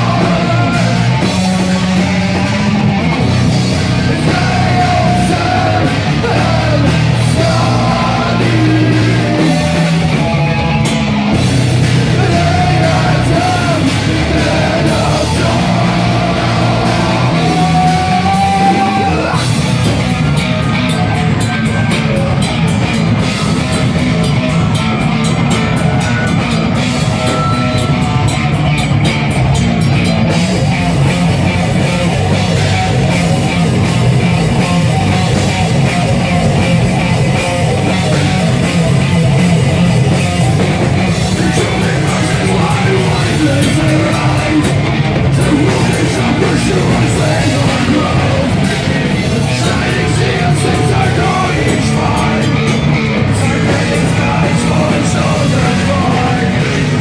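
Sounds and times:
live rock band playing: 0.0s - 57.0s
person singing: 3.7s - 10.9s, 11.8s - 19.6s, 40.9s - 57.0s.

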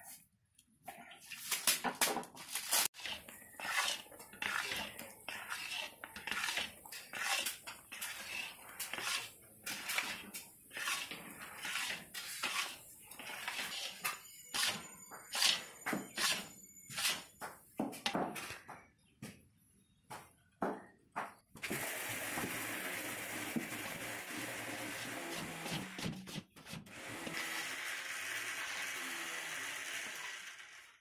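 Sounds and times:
metal spatula scraping pan: 2.6s - 17.4s.

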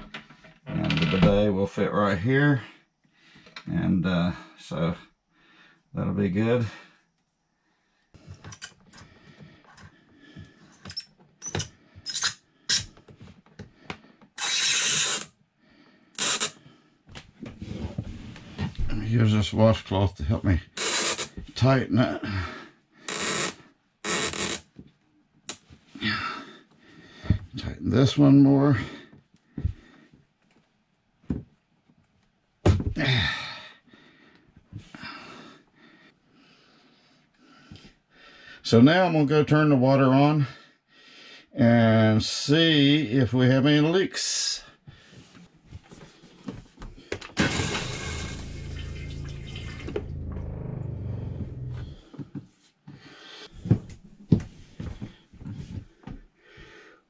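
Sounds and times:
plastic parts clicking and squeaking: 8.3s - 9.0s, 10.7s - 13.2s, 14.2s - 15.3s, 16.2s - 16.6s.

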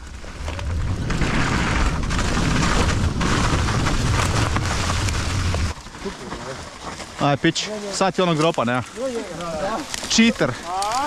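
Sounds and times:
wind buffeting microphone: 0.0s - 5.8s
bike tyres rattling and crunching: 0.0s - 11.0s.

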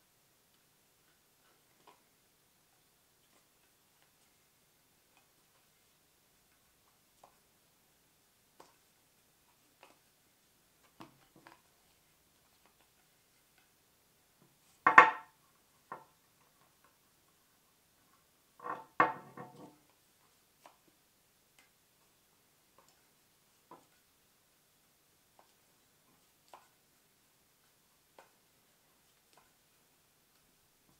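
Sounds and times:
knocks and rattles of handling: 14.8s - 15.3s, 18.6s - 19.9s
axe knocking on wooden table: 14.9s - 15.3s, 18.6s - 19.6s.

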